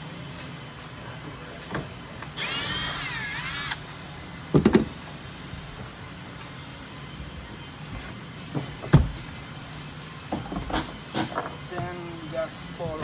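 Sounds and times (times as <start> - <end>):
cordless drill whining: 2.4 - 3.8.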